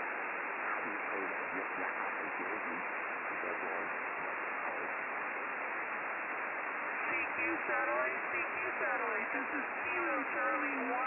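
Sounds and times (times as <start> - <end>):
radio receiver hiss: 0.0 - 11.0
faint voice in noise: 0.6 - 5.0.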